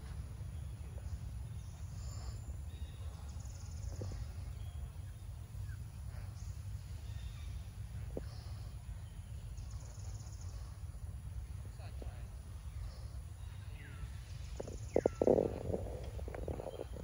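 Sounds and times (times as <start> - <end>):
faint bird chirps: 0.0 - 17.0
low rumble: 10.4 - 17.0.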